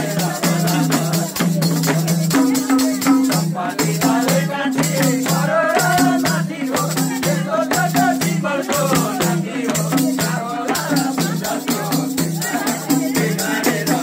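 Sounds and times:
hand drum rhythm: 0.0 - 14.0
people singing folk song: 0.0 - 14.0.

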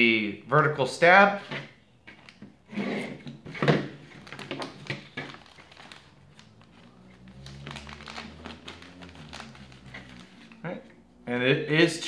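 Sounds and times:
plastic bag rustling and crinkling: 3.4 - 10.6.

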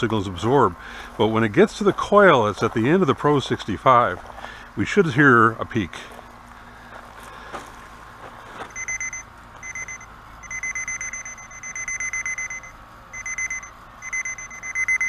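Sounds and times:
fast-pulsing high beep: 8.7 - 15.0.

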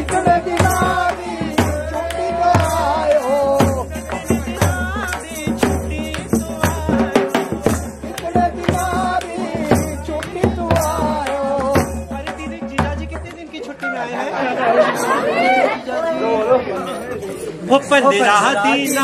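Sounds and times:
drum beating steadily: 0.0 - 14.1.

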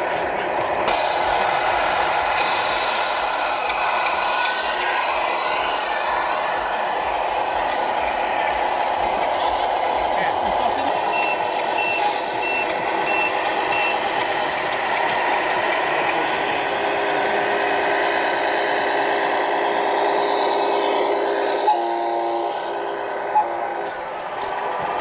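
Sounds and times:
simulated diesel engine: 0.0 - 25.0
air-brake hiss: 0.9 - 6.5
reversing beeps: 11.1 - 14.0.

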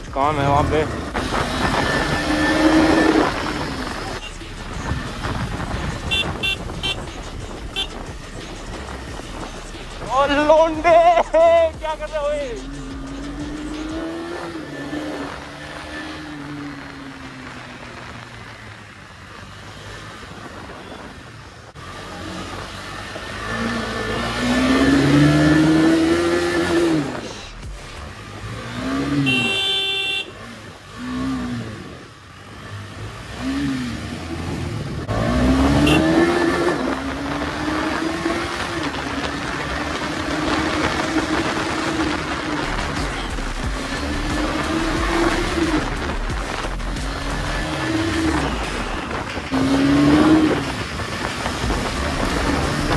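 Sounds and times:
motorcycle engine revving: 0.0 - 21.1, 21.7 - 52.9
vehicle horn: 6.0 - 8.0, 28.9 - 30.6, 35.6 - 36.6.

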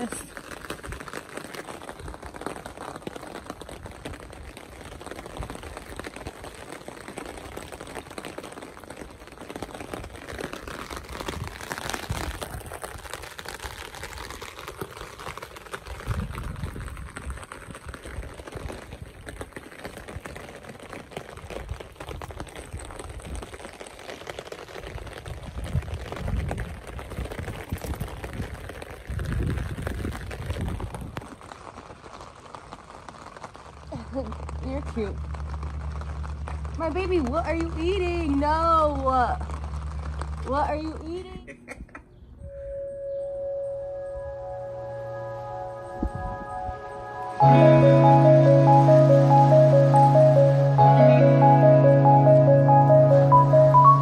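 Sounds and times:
rain on an umbrella: 0.0 - 41.4, 42.7 - 54.0
low rumbles: 33.8 - 41.2, 42.3 - 54.0.

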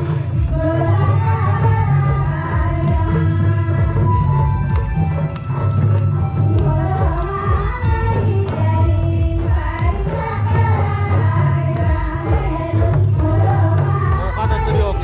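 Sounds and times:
group singing devotional song: 0.0 - 4.9, 6.4 - 15.0
music with steady beat: 0.0 - 15.0.

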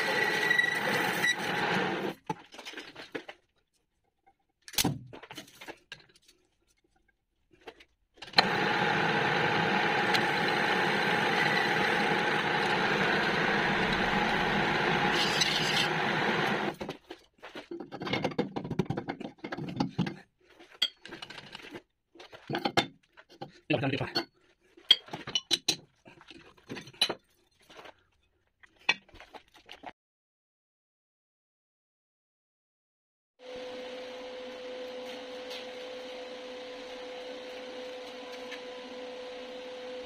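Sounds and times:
metal lathe machining: 0.0 - 2.1, 8.4 - 16.7.

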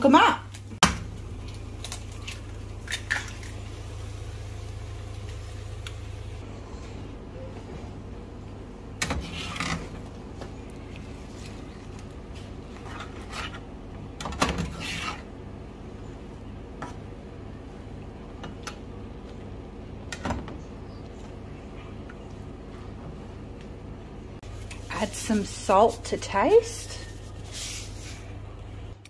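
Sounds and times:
steady low hum: 0.0 - 29.0
spatula scraping frying pan: 14.7 - 15.3.

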